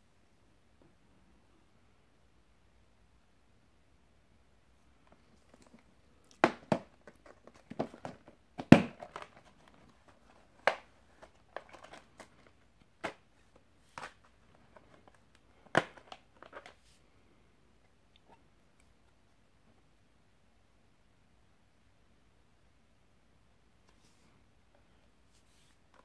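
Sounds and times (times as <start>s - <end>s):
plastic disc case clicks and crackles: 6.4s - 16.8s.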